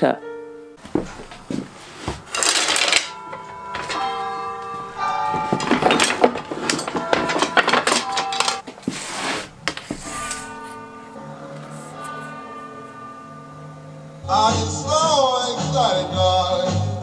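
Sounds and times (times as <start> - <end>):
wooden strips clattering: 0.8 - 10.6.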